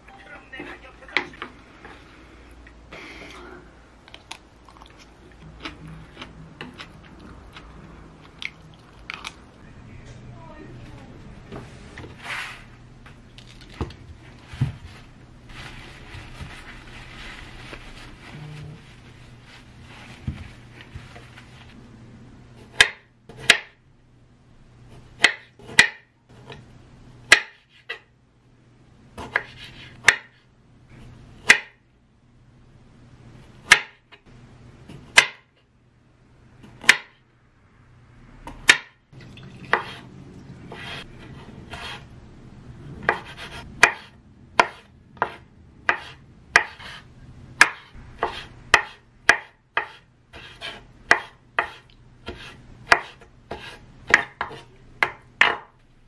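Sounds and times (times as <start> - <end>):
knife chopping on wooden board: 22.7 - 23.8, 25.2 - 26.6, 27.3 - 28.0, 29.2 - 30.4, 33.6 - 34.0, 34.9 - 35.5, 36.8 - 37.1, 38.5 - 39.0, 43.0 - 47.0, 47.6 - 55.7.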